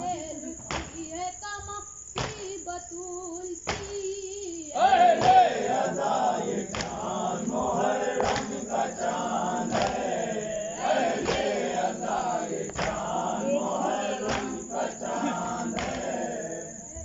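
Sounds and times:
chest-beating slaps: 2.2 - 2.5, 3.7 - 4.0, 4.8 - 16.4
men chanting a lament: 4.8 - 17.0.

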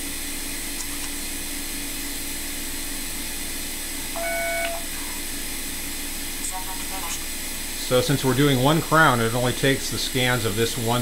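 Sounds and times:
steady background hum: 0.0 - 11.0
short electronic beep: 4.2 - 4.9.

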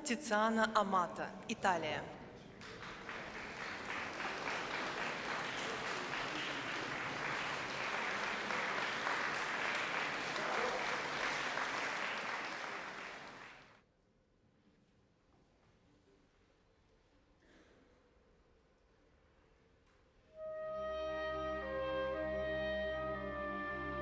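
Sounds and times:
audience applauding: 2.6 - 13.7.

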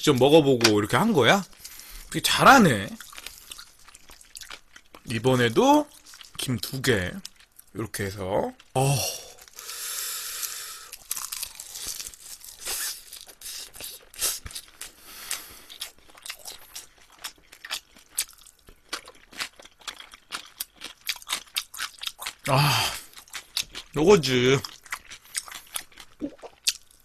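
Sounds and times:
wet chewing: 3.0 - 5.1, 11.0 - 24.0, 24.6 - 27.0
crisp tearing crunch of seaweed: 10.9 - 27.0.

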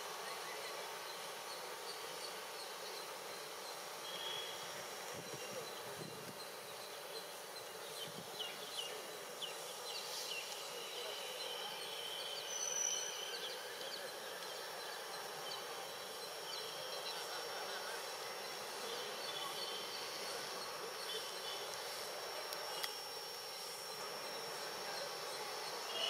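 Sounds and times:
steady hiss: 0.0 - 26.0.

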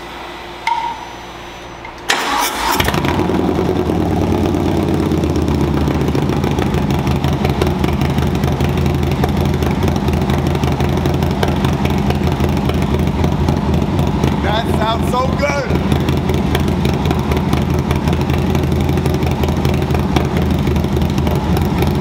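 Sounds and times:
starter motor cranking: 2.0 - 3.6
motorcycle engine idling: 2.9 - 22.0.

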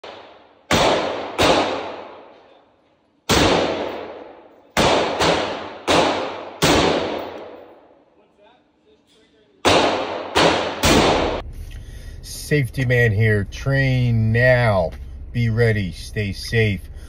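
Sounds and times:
rifle shots echoing indoors: 0.0 - 8.2, 9.5 - 11.4.

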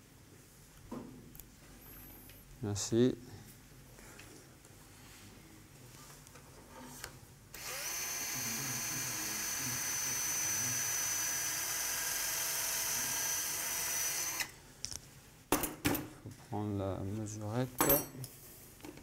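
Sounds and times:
power drill whining: 7.5 - 14.5.

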